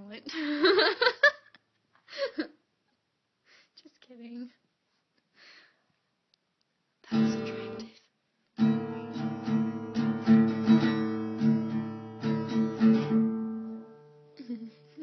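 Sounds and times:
acoustic guitar strumming: 7.1s - 7.9s, 8.6s - 14.9s.

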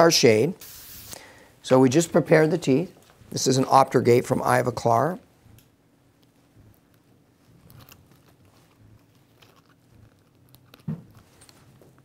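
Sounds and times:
soft plastic clicks and rustles: 5.5s - 12.0s.

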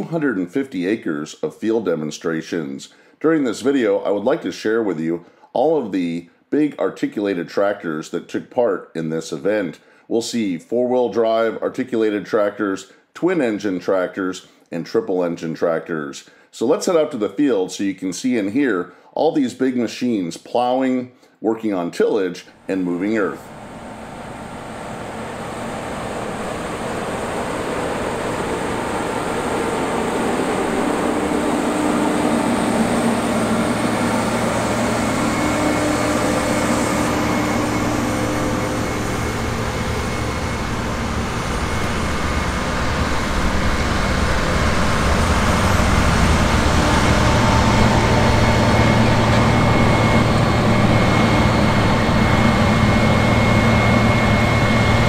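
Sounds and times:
tractor diesel engine droning: 22.7s - 55.0s.

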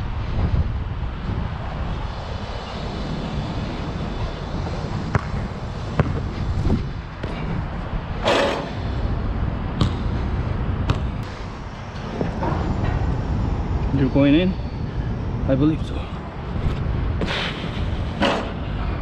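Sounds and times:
steady low rumble: 0.0s - 19.0s
basketball bouncing on court: 5.1s - 6.3s, 9.8s - 10.1s, 10.8s - 11.2s.

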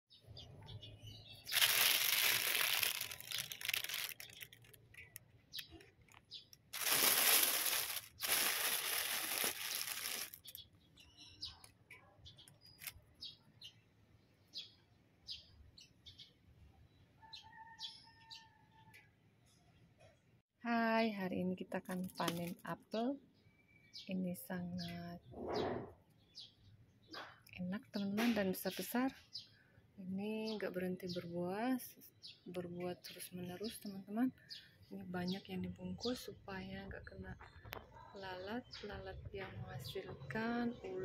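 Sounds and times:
plastic bag rustling and crinkling: 1.5s - 10.6s.

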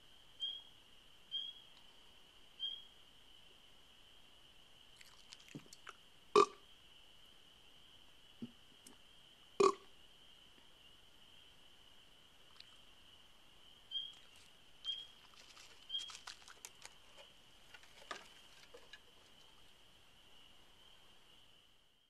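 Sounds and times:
faint high-pitched whine: 0.0s - 22.0s
raccoon pattering on wooden deck: 14.1s - 19.6s.

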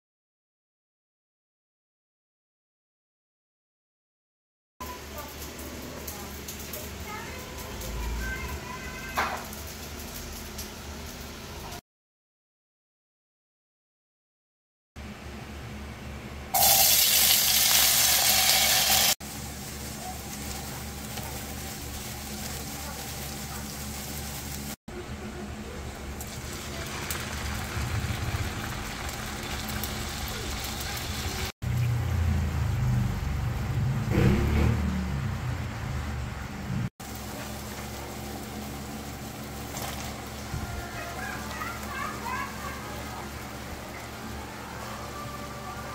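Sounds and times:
potatoes sizzling in hot oil: 16.6s - 24.8s, 26.2s - 32.2s, 37.0s - 44.4s.

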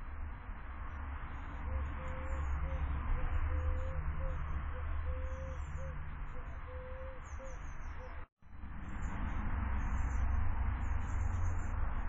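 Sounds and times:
dove cooing: 1.7s - 8.2s.

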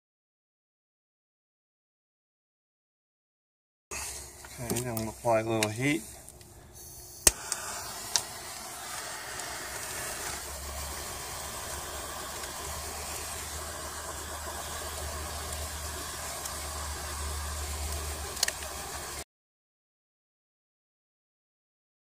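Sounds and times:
torch flame hissing: 3.9s - 19.2s.

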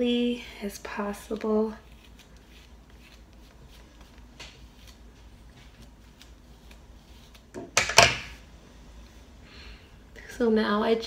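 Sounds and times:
comb scratching through hair: 0.9s - 7.6s.

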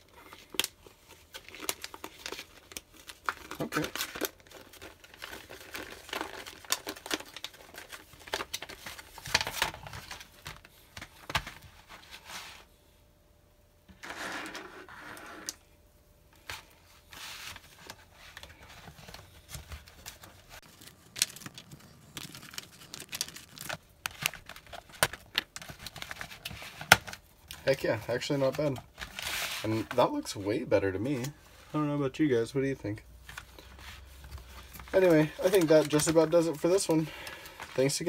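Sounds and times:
plastic tray crinkling: 17.8s - 30.3s, 34.6s - 38.0s.

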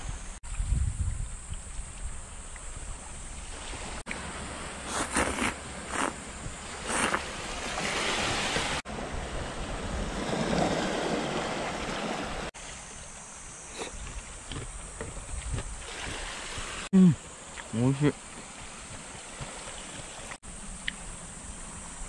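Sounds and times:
wind: 0.0s - 22.0s
waves washing on pebbles: 3.6s - 12.5s.

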